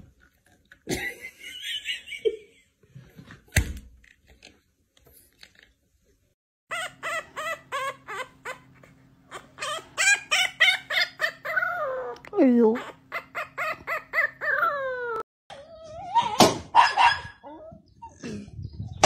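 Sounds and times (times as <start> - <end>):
puppy squealing: 6.7 - 18.2.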